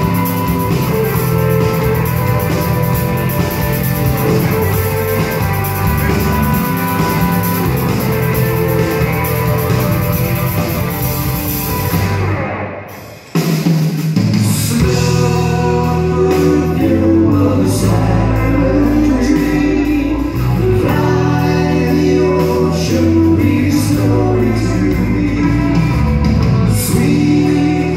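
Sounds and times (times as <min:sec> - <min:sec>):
live rock band playing: 0:00.0 - 0:27.9
man singing lead vocals: 0:14.3 - 0:27.9.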